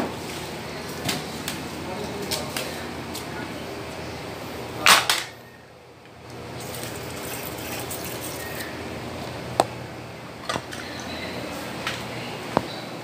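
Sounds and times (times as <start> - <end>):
pressure sprayer hissing: 6.4 - 8.9.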